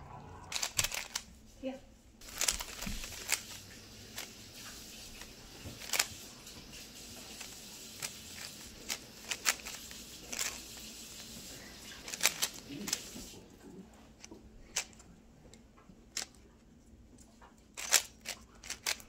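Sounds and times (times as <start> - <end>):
puzzle cube clicking: 0.5 - 1.2, 2.2 - 6.2, 7.2 - 11.2, 12.0 - 13.2, 17.8 - 19.0.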